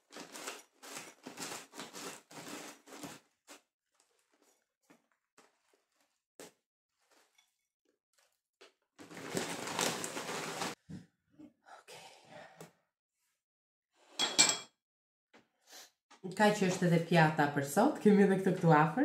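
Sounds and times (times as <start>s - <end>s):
plastic packet crinkling: 0.0s - 4.5s, 9.0s - 10.8s.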